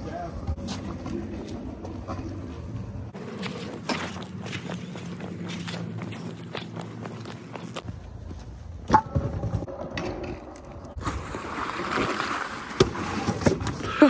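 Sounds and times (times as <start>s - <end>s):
scooter wheels rolling over concrete: 0.4s - 7.9s, 8.9s - 14.0s.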